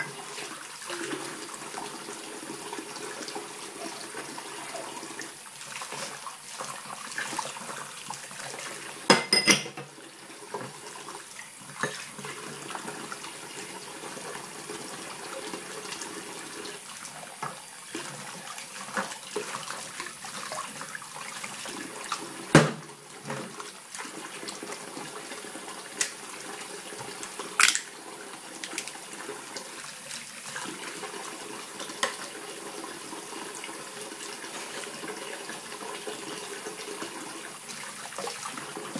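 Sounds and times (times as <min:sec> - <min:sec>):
glasses and pots clinking: 0:09.1 - 0:09.9
tap running into saucepan: 0:22.5 - 0:23.6.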